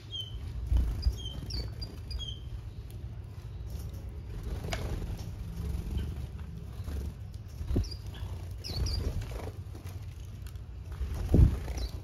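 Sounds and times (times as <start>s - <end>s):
high bird chirps: 0.0s - 4.3s, 5.8s - 9.3s
birds pecking seed: 0.0s - 12.0s.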